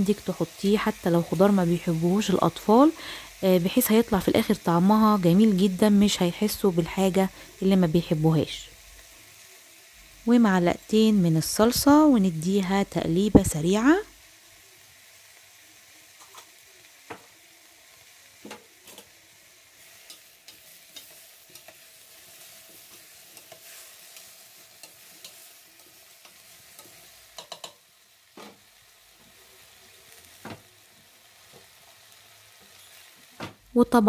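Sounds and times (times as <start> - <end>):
vegetables sizzling in oil: 0.0 - 34.0
spoon scraping and knocking pot: 26.8 - 27.8.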